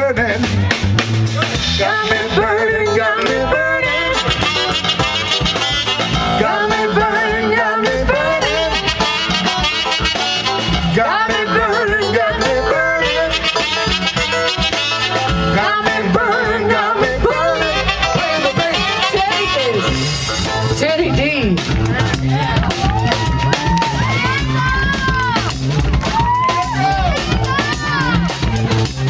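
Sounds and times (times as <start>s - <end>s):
drums: 0.0s - 29.0s
electric bass: 0.0s - 29.0s
saxophones playing melody: 1.8s - 21.4s.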